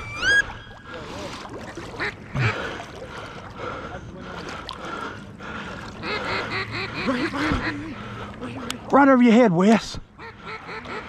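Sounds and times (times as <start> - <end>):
geese honking: 0.0 - 1.0, 6.0 - 7.8.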